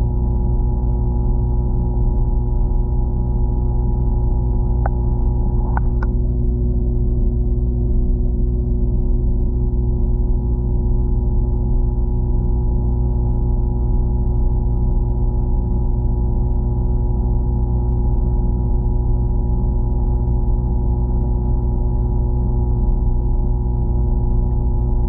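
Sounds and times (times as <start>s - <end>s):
muffled underwater low hum: 0.0s - 25.0s.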